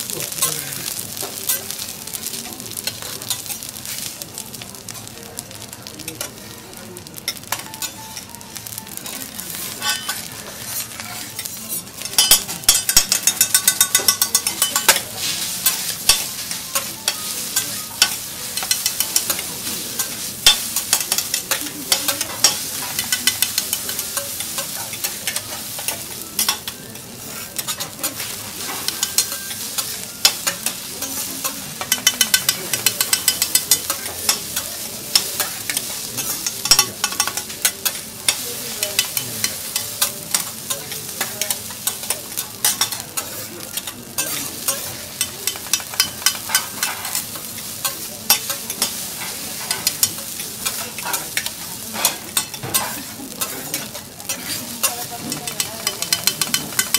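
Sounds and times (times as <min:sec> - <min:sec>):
steady sizzle: 0:00.0 - 0:56.9
metal spatulas tapping griddle: 0:10.9 - 0:15.0, 0:15.6 - 0:26.8, 0:27.6 - 0:56.9.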